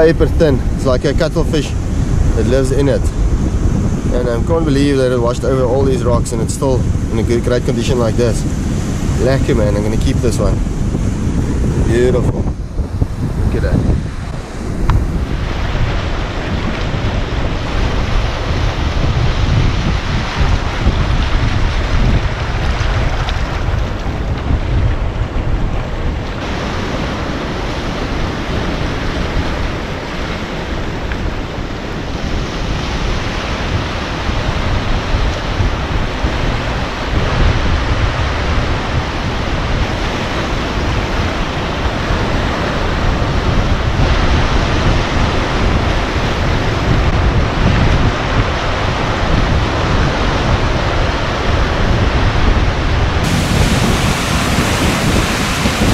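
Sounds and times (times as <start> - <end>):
wind buffeting microphone: 0.0 - 55.9
surf breaking over rocks: 26.3 - 31.4, 53.2 - 55.9.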